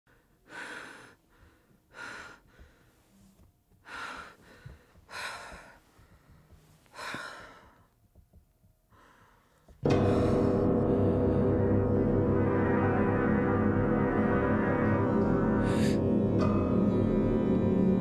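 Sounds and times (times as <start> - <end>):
person breathing heavily: 0.1 - 8.0, 8.8 - 11.8, 15.3 - 16.3.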